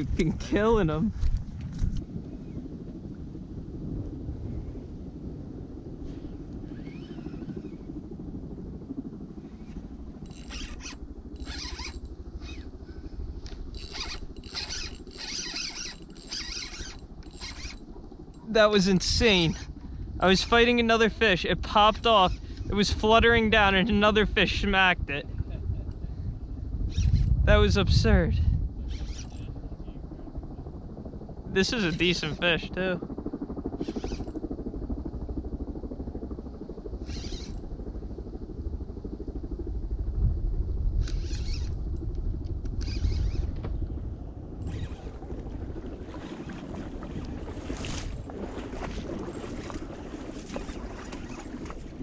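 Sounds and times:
wind on microphone: 0.0 - 32.8, 33.4 - 52.0
fishing reel whirring: 6.3 - 7.9, 10.2 - 23.2, 28.8 - 29.6, 33.8 - 34.4, 37.0 - 37.6, 41.0 - 41.8, 42.8 - 43.6, 44.6 - 52.0.

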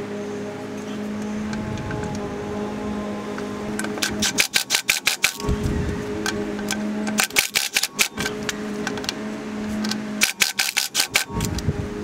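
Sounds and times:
impact wrench motor whir: 3.3 - 12.0
impact wrench rapid hammering: 3.8 - 9.0, 9.8 - 11.6.

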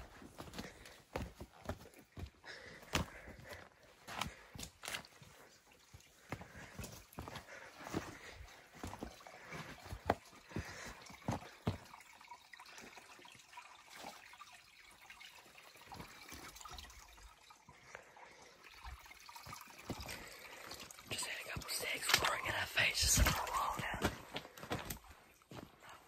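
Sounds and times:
footsteps on wet rocks: 0.0 - 11.9, 21.1 - 26.0
stream trickling: 0.0 - 26.0.

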